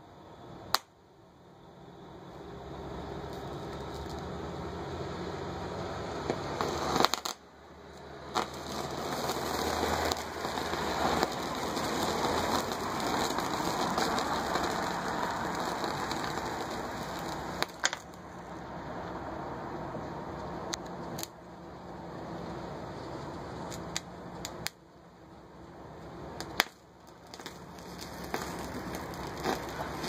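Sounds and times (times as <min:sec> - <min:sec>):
sharp pops: 0:00.7 - 0:01.0, 0:06.2 - 0:07.5, 0:08.3 - 0:18.2, 0:23.2 - 0:24.8, 0:26.4 - 0:30.0
electric arc crackling hiss: 0:02.5 - 0:18.4, 0:26.0 - 0:30.0.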